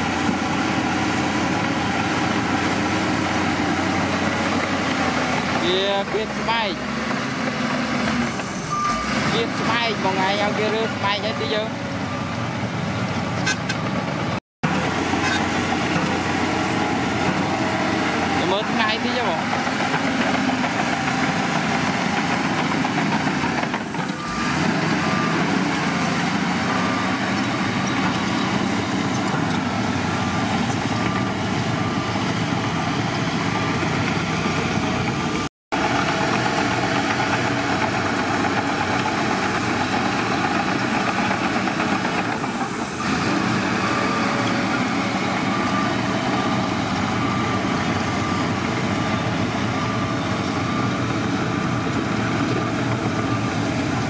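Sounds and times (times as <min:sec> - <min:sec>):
bulldozer diesel engine: 0:00.0 - 0:54.0
backup alarm beeping: 0:08.7 - 0:10.4.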